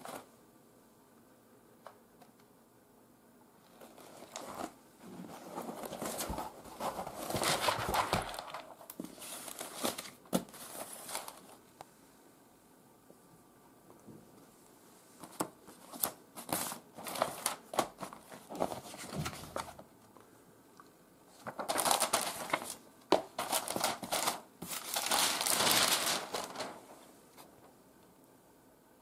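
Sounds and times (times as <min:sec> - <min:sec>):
paper rustling: 0:03.6 - 0:11.6, 0:15.2 - 0:19.8, 0:21.3 - 0:27.5.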